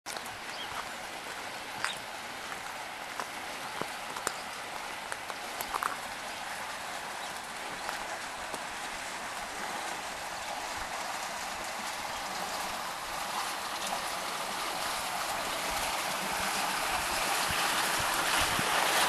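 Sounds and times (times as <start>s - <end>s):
raindrops ticking on surfaces: 0.1s - 11.0s.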